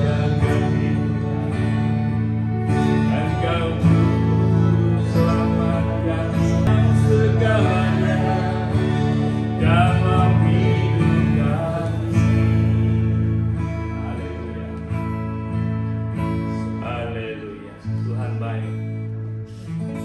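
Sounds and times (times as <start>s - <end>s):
small group singing: 0.0s - 14.7s
acoustic guitars strumming: 0.0s - 20.0s.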